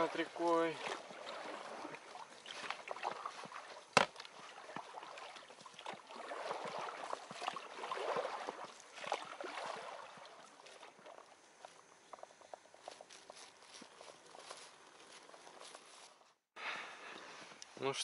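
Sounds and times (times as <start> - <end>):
water splashing and gurgling: 0.0 - 13.0.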